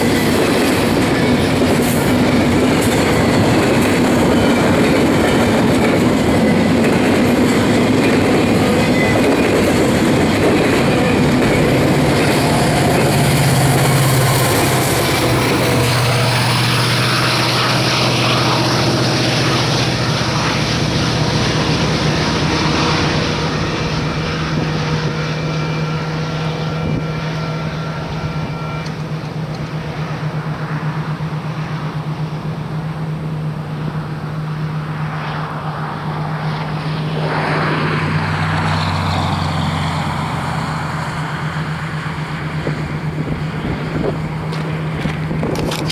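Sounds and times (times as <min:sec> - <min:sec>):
train wheels hissing on rails: 0:00.0 - 0:35.2
diesel locomotive engine drone: 0:00.0 - 0:45.9
rushing noise: 0:00.0 - 0:45.9.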